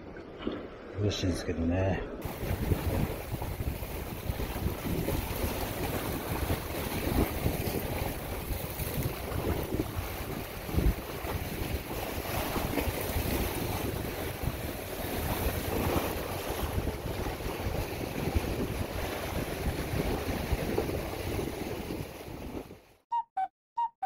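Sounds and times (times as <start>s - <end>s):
waves splashing against rocks: 2.2s - 22.8s
wind buffeting microphone: 2.2s - 22.9s.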